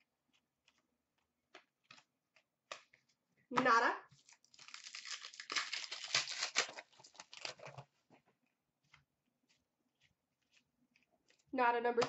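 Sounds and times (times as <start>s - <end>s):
foil wrapper tearing and crinkling: 4.2s - 7.8s.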